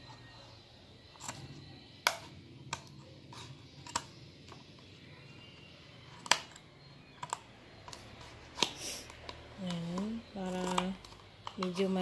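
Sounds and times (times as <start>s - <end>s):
scissors snipping paper cup: 8.6s - 12.0s.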